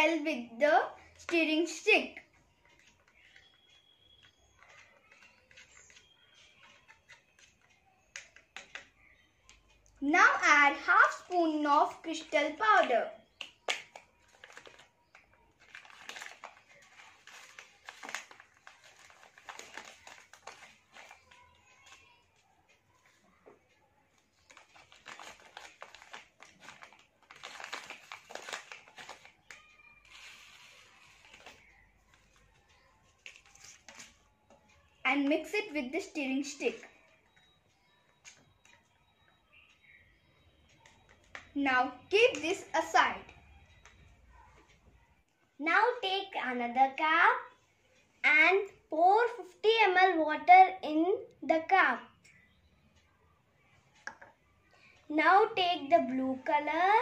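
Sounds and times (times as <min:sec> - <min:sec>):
plastic packet crinkling: 0:12.2 - 0:22.1, 0:24.2 - 0:34.2.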